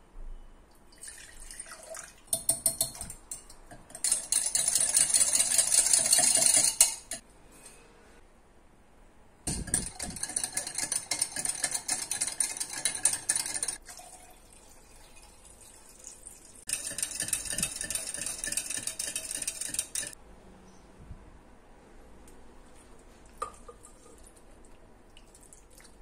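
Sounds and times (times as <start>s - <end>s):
whisk clattering in glass jug: 2.3s - 7.2s, 9.5s - 13.8s, 16.7s - 20.2s.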